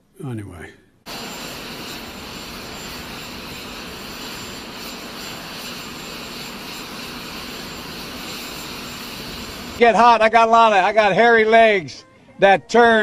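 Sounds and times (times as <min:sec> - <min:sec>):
jet aircraft rushing and whine: 0:01.1 - 0:09.8.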